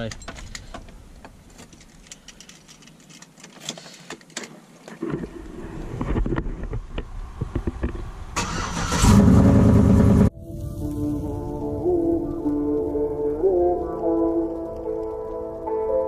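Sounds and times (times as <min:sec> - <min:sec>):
road noise: 0:00.0 - 0:15.8
truck engine starting and running: 0:08.0 - 0:10.3
music: 0:10.3 - 0:16.0.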